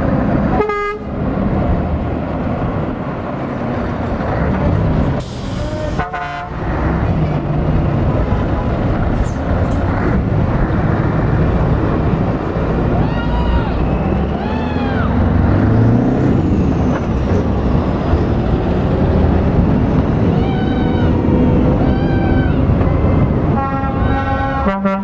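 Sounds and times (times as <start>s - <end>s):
diesel truck engines running: 0.0s - 25.0s
truck horn toot: 0.5s - 1.1s, 5.6s - 6.7s, 23.5s - 25.0s
air hiss: 5.2s - 6.0s.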